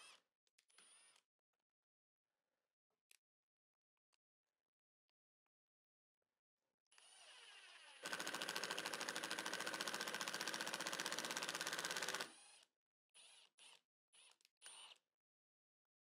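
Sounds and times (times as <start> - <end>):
impact driver motor whine: 8.0 - 12.4.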